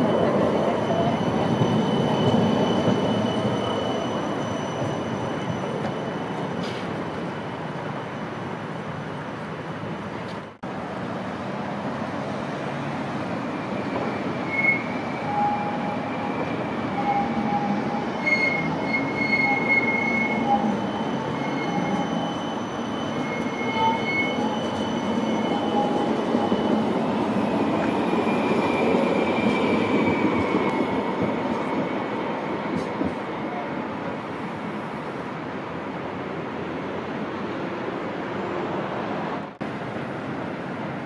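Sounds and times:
tram wheels squealing: 0.0 - 9.0, 13.3 - 33.7
tram running on rails: 0.0 - 41.0.

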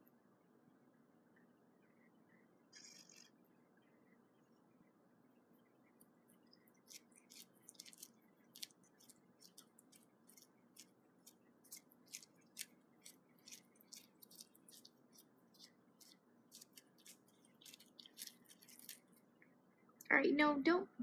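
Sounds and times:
cat licking plastic wrap: 6.1 - 19.3.

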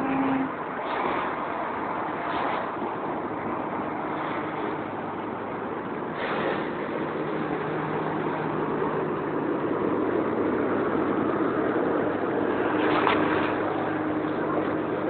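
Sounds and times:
bus diesel engine humming: 0.0 - 15.0
cooling fan rushing: 0.0 - 15.0.

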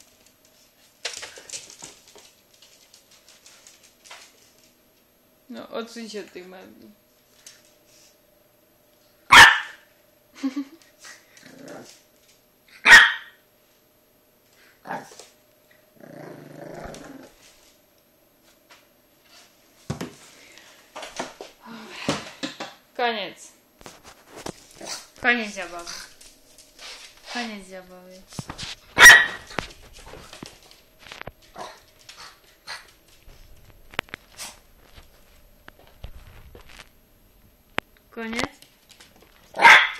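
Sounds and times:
paws clicking on wooden floor: 0.0 - 4.8, 28.3 - 36.8
puppy barking: 9.3 - 9.8, 12.8 - 13.4, 29.0 - 29.5, 39.6 - 39.9
puppy growling: 11.1 - 12.0, 14.8 - 17.4
puppy yipping: 12.9 - 13.3, 29.0 - 29.5.

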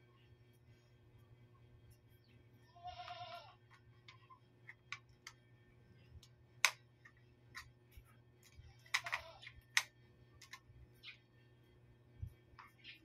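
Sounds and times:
hands clicking plastic parts: 3.6 - 5.4, 6.1 - 7.8, 8.4 - 10.7.

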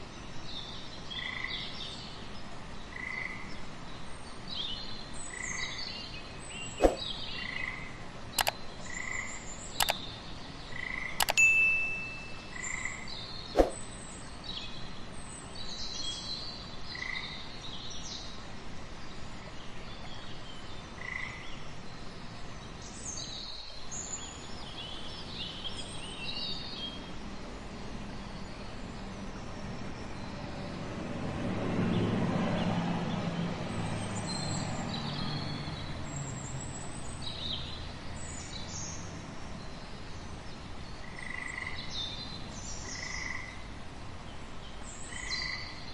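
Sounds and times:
sharp click: 6.8 - 7.0, 9.8 - 10.0, 11.2 - 12.5, 13.6 - 13.8
bird chirps: 11.1 - 13.8.

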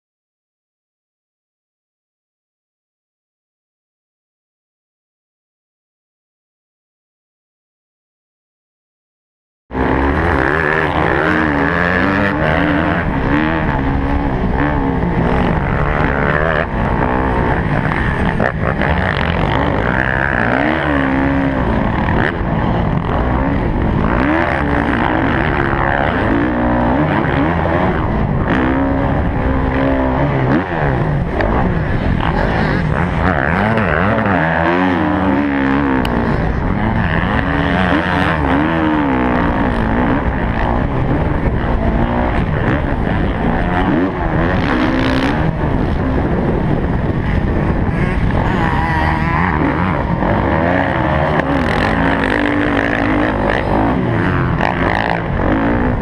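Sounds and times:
dirt bike engine revving: 9.7 - 56.0
rush of noise: 9.7 - 56.0.

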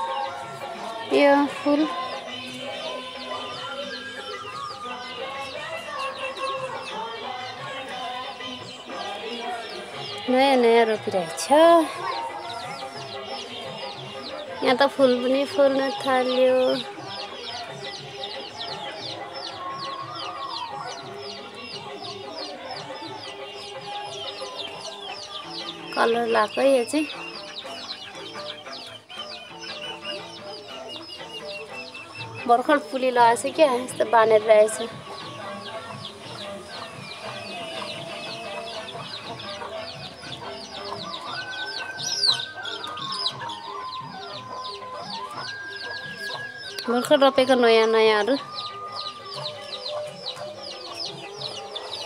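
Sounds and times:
chicks cheeping: 0.0 - 52.0
hen clucking: 16.6 - 47.0, 47.6 - 52.0.

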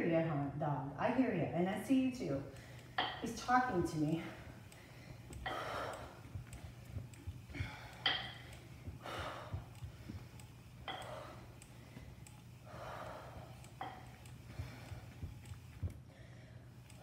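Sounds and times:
low hum: 2.1 - 17.0
woman breathing hard: 4.2 - 6.8, 7.4 - 15.3, 16.0 - 16.8.

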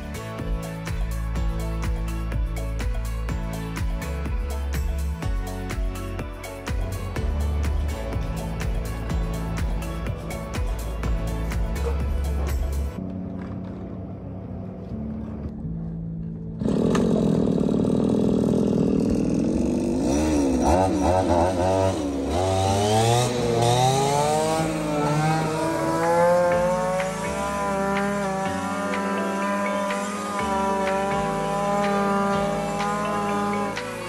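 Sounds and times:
brush cutter engine revving: 16.6 - 34.0.

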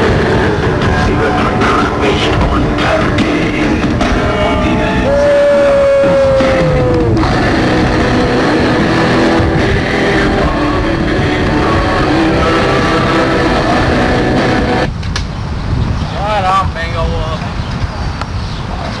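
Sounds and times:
loud rock music with guitar: 0.0 - 14.9.

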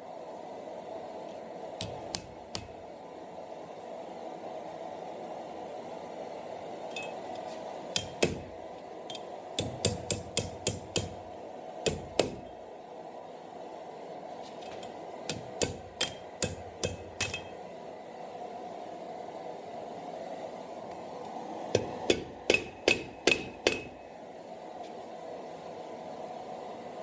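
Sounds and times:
hammer striking steel on anvil: 7.9 - 8.5, 9.1 - 11.2, 11.9 - 12.5, 15.3 - 17.6, 21.8 - 24.0.

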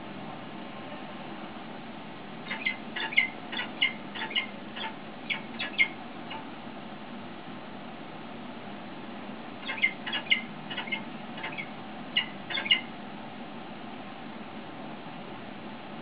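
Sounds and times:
bird chick chirping: 2.5 - 6.5, 9.6 - 12.9.

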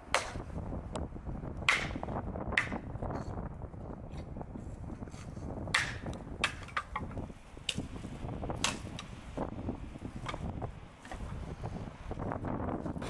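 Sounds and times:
axe chopping firewood: 0.0 - 0.6, 1.6 - 3.0, 5.6 - 9.1.

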